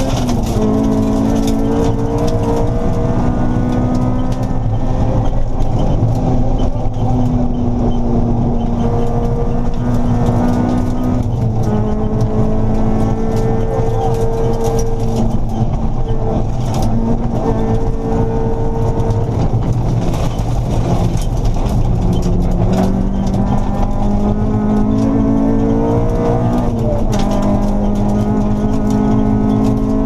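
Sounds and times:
car engine at high revs: 0.0 - 30.0
gravel hitting car: 18.7 - 30.0.

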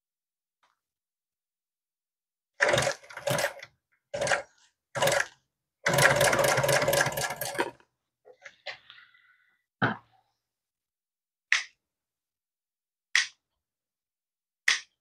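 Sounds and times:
sewing machine stitching: 2.6 - 7.8.

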